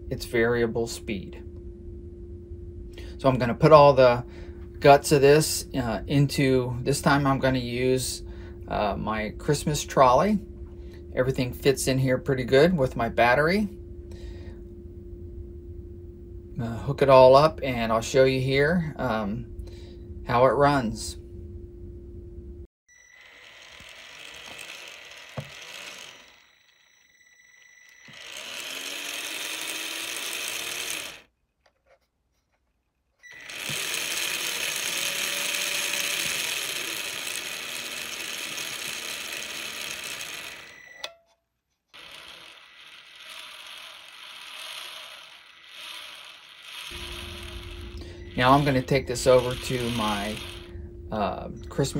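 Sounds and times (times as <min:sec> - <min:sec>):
small electric motor whining: 0:22.9 - 0:31.3, 0:33.2 - 0:41.2, 0:41.9 - 0:50.9.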